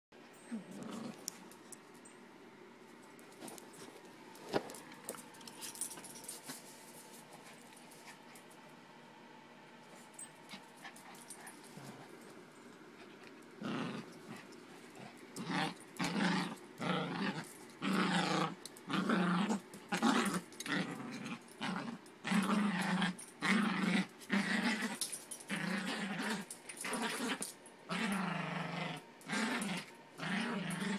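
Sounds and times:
dog growling in play: 0:00.5 - 0:01.5, 0:10.4 - 0:12.2, 0:13.0 - 0:30.9.

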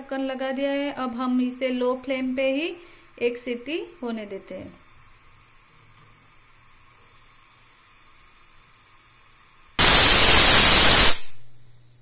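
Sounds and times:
pressure cooker whistling: 0:09.8 - 0:11.4.

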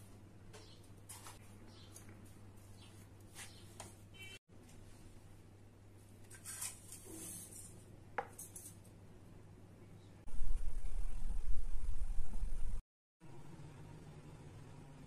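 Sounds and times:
low hum: 0:10.2 - 0:15.0.

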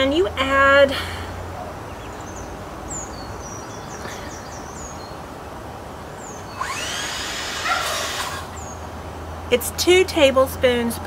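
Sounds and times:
small birds chirping: 0:01.3 - 0:09.8.

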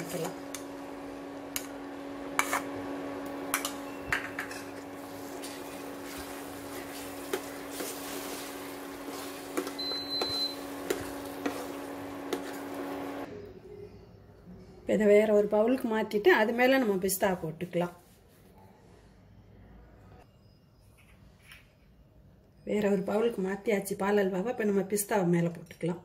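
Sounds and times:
induction cooktop hum: 0:00.0 - 0:17.2
spoon scraping a pan: 0:02.3 - 0:02.8, 0:03.5 - 0:12.9.

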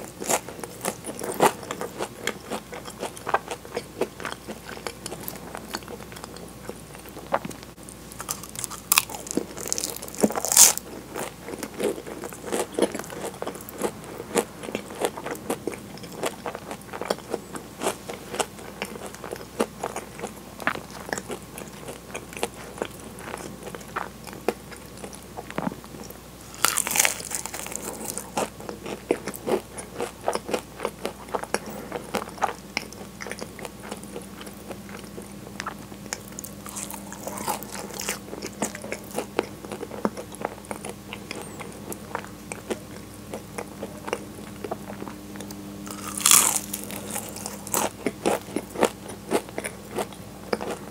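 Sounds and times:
chewing: 0:00.0 - 0:07.6, 0:08.2 - 0:50.9
pastry crunching under bites: 0:08.2 - 0:24.1, 0:26.5 - 0:50.9.

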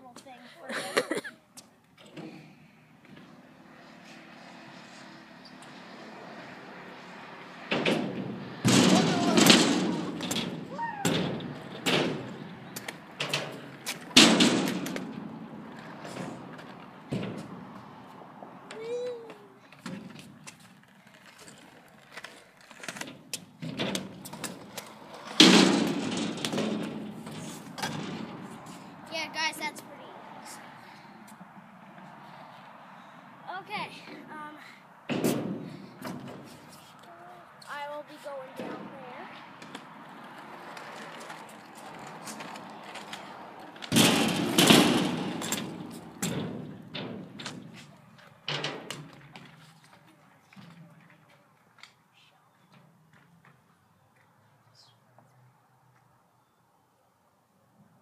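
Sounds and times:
scooter wheels rolling on concrete: 0:00.0 - 0:56.6
scooter wheels landing thud: 0:07.8 - 0:17.6, 0:35.1 - 0:36.6, 0:42.4 - 0:47.8.

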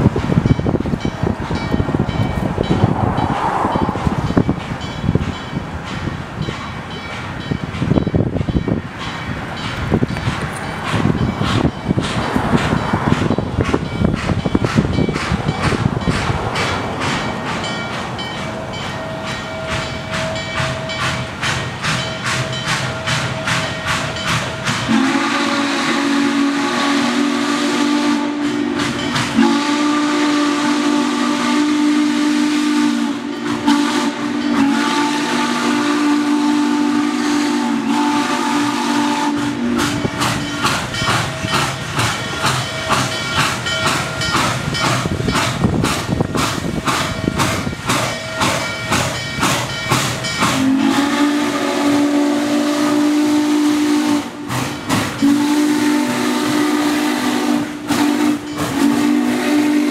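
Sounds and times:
steam hissing: 0:00.0 - 0:59.9
steam locomotive chuffing: 0:00.0 - 0:59.9
steam whistle: 0:23.1 - 0:40.1, 0:50.3 - 0:59.9.

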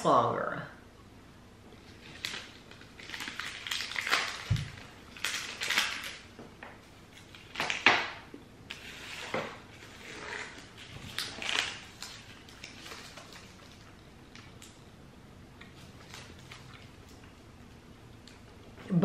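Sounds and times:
candy wrapper crinkling: 0:01.8 - 0:06.3, 0:07.1 - 0:08.1, 0:08.7 - 0:14.8.

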